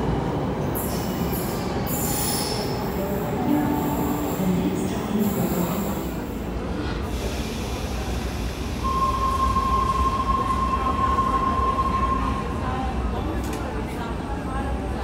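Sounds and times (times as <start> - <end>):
steady high tone: 3.2 - 6.2.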